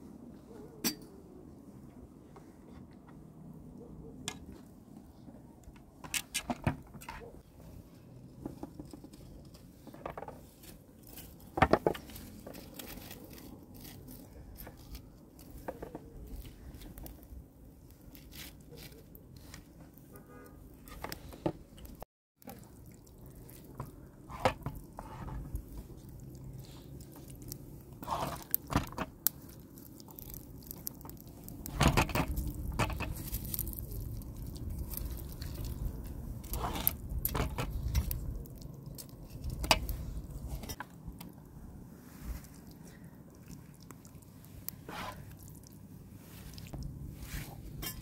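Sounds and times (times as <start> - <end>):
wet squishes of stuffing: 21.8 - 41.1, 42.0 - 48.0.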